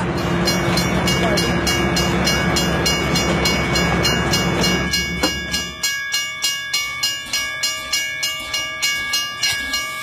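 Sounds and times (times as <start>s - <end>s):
train wheels clattering on rails: 0.0s - 10.0s.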